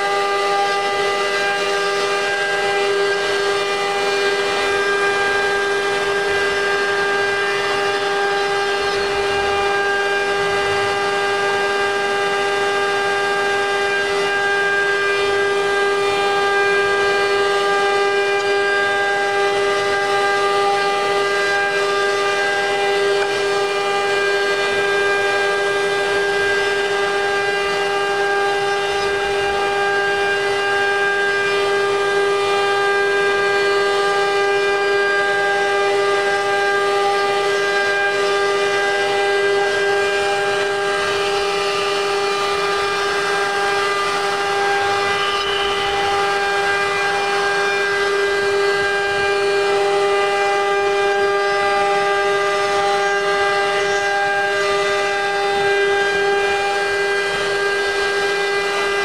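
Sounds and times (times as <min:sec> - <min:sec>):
router spindle whining: 0:00.0 - 0:59.0
bit cutting wood hiss: 0:43.9 - 0:46.6.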